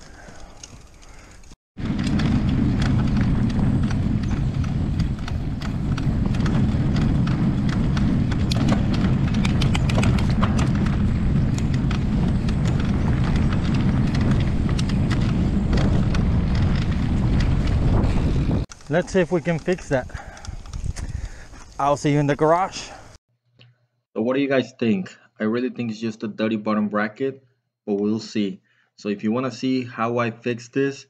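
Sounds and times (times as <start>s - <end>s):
bicycle clicks and rattles: 0.0s - 21.8s
bicycle rolling over dirt trail: 0.0s - 22.4s.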